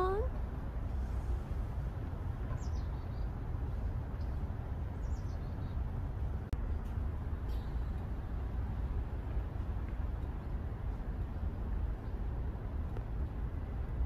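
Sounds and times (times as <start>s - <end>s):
low outdoor rumble: 0.0s - 14.0s
bird chirps: 5.0s - 5.8s.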